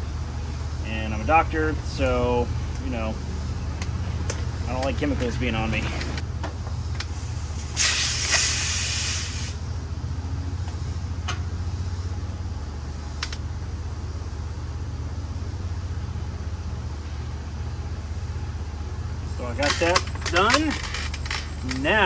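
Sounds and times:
steady low hum: 0.0s - 22.0s
refrigerant hissing out: 7.1s - 9.7s.

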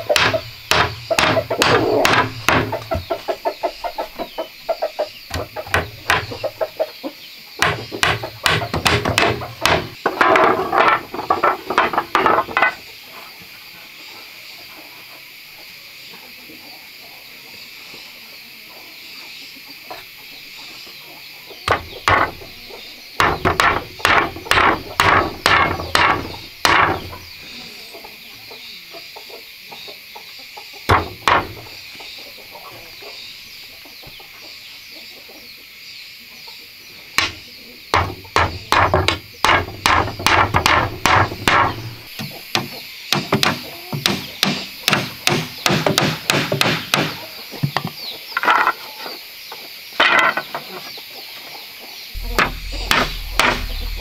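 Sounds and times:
hammer driving nails into wood: 0.1s - 2.8s, 7.6s - 10.0s.

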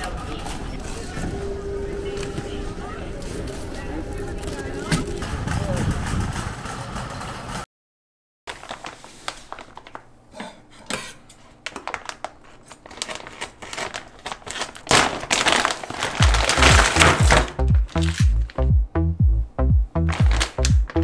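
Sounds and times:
plastic packaging crinkling: 8.5s - 10.1s, 11.6s - 18.7s, 20.0s - 21.0s
loud noise: 16.2s - 21.0s
music: 16.2s - 21.0s.

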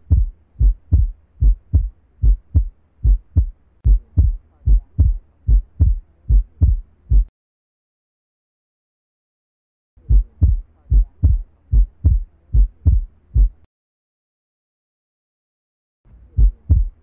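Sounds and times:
heartbeat thumps: 0.0s - 7.3s, 10.0s - 13.7s, 16.3s - 17.0s.

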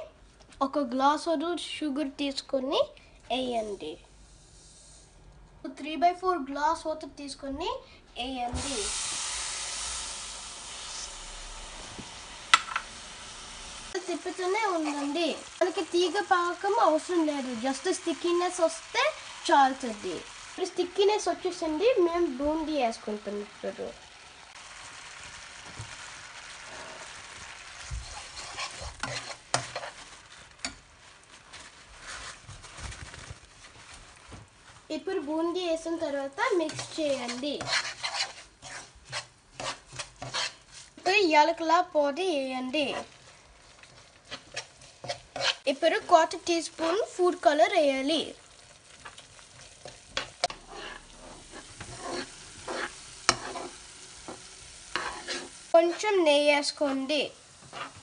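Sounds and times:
syrup bubbling and sizzling: 8.2s - 58.0s
spoon scraping a pan: 27.8s - 30.8s, 36.6s - 41.0s, 43.8s - 45.7s, 48.9s - 56.1s, 57.6s - 58.0s.

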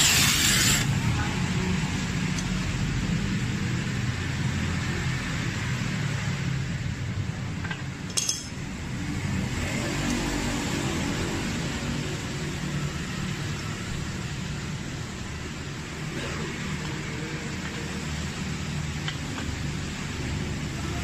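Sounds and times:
steady hiss: 0.0s - 1.0s
light metallic clink: 8.0s - 8.6s.

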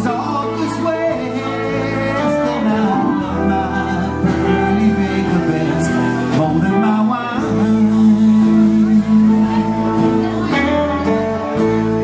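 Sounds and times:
live band playing: 0.0s - 12.0s.

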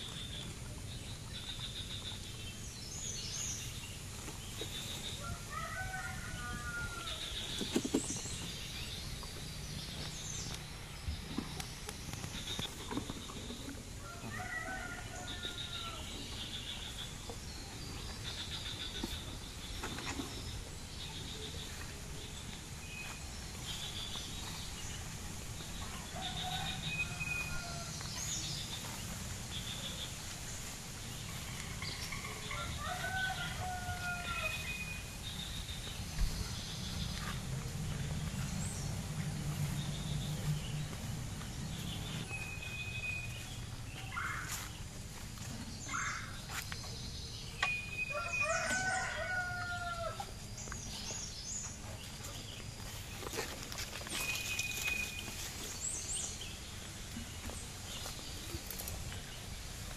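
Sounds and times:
birds chirping: 0.0s - 59.9s
rooster crowing: 5.2s - 7.2s, 14.0s - 16.1s, 26.1s - 28.0s, 32.5s - 34.8s, 48.1s - 50.3s.

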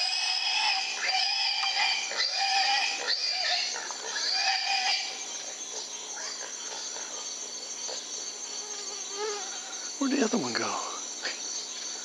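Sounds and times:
hogs squealing: 0.0s - 5.3s
crickets trilling: 0.0s - 12.0s.

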